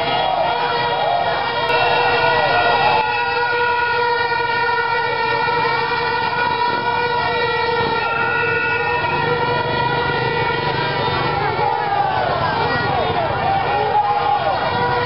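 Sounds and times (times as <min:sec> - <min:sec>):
horn holding steady note: 0:00.0 - 0:11.6
crowd shouting: 0:00.0 - 0:15.0.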